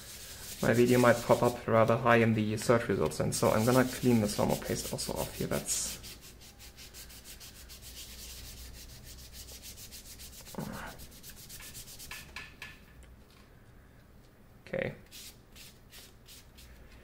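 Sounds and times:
rubbing strokes on graphics card: 0.0s - 1.6s, 3.4s - 12.3s.

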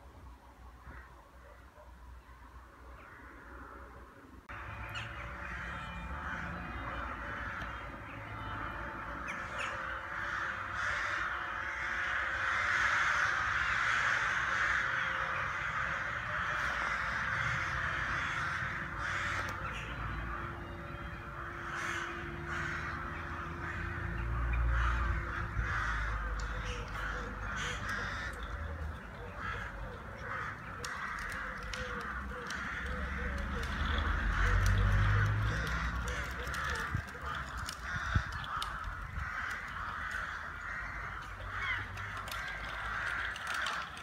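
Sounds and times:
crows cawing: 0.8s - 1.6s, 2.9s - 44.0s.

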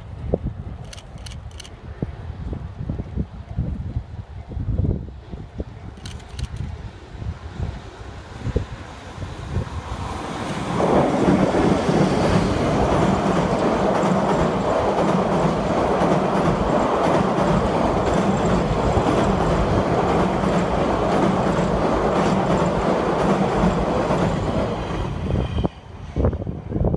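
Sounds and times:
train passing close by: 6.6s - 26.9s
wheels running on rails: 10.7s - 25.8s.

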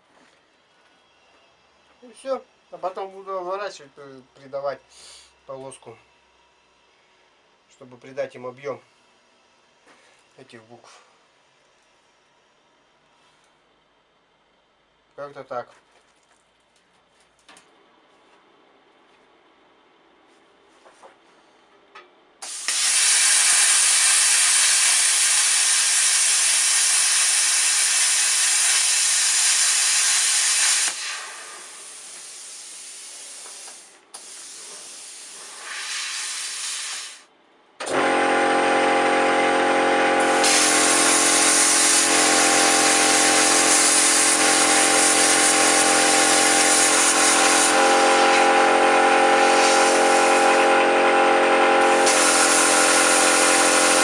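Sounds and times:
plasma cutter hissing: 22.4s - 37.3s, 40.2s - 54.0s
steady multi-tone hum: 37.1s - 54.0s.

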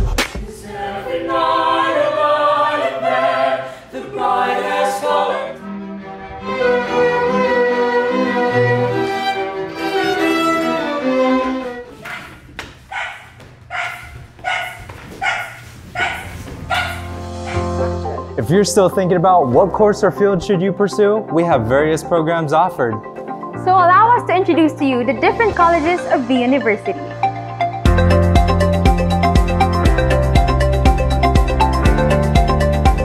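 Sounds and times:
sustained string chords: 4.0s - 11.9s, 17.0s - 33.0s.

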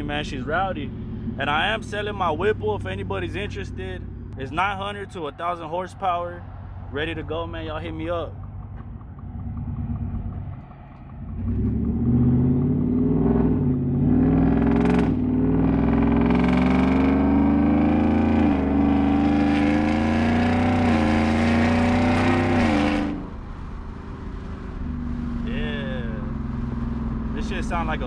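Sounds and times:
engine accelerating hard: 0.0s - 5.6s, 6.2s - 28.0s
person speaking: 25.5s - 26.3s, 27.4s - 28.0s.

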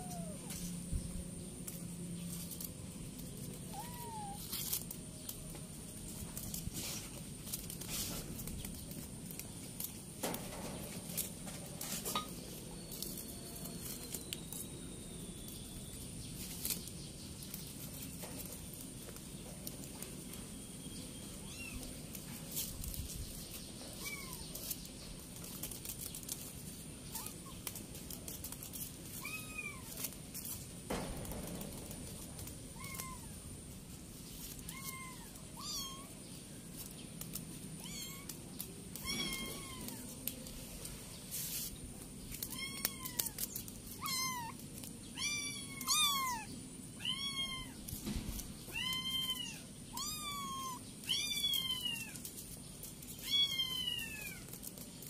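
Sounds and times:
kittens mewing: 0.0s - 0.7s.

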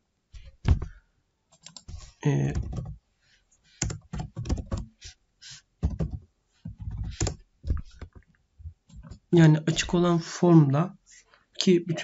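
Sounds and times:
typing on computer keyboard: 1.5s - 3.0s, 3.8s - 4.9s, 5.8s - 6.2s, 6.8s - 8.1s.

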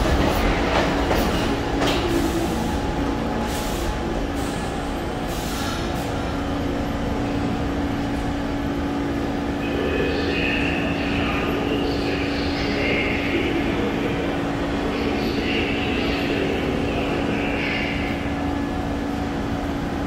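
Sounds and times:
subway train rumbling: 0.0s - 20.0s
muffled public address announcement: 9.0s - 18.7s.

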